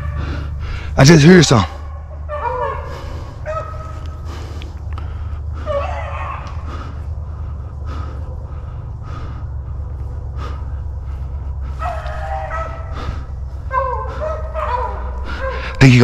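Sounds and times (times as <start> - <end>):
person breathing hard: 0.0 - 1.0, 1.7 - 16.0
steady low rumble: 0.0 - 16.0
dog baying: 1.7 - 4.5, 5.5 - 7.0, 10.1 - 16.0
crunching footsteps in brush: 9.9 - 15.2.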